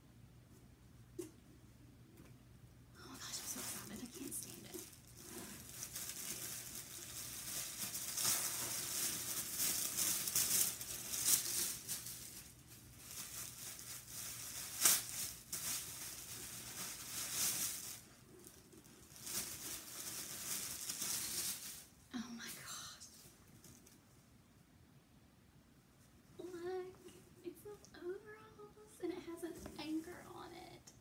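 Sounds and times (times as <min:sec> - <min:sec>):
tissue paper rustling: 0:03.0 - 0:22.0.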